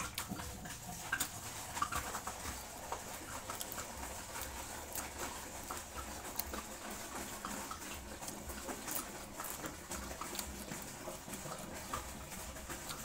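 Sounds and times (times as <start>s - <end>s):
person chewing and smacking lips: 0.0s - 13.0s.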